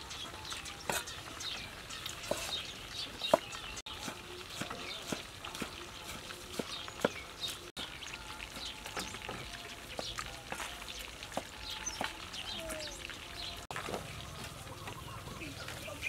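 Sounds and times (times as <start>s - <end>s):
faint birds chirping: 0.0s - 16.0s.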